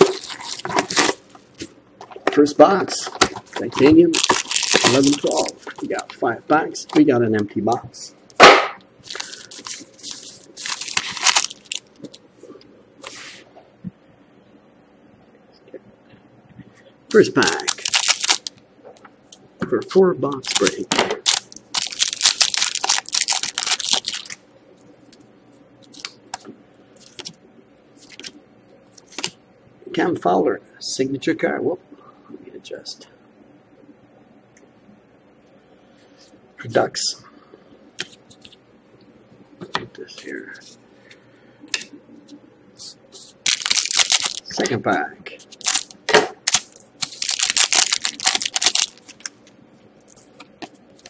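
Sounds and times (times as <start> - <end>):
foil wrapper tearing and crinkling: 0.0 - 1.2, 3.8 - 6.0, 9.0 - 12.1, 17.1 - 18.5, 20.4 - 24.4, 43.4 - 44.6, 45.6 - 49.3.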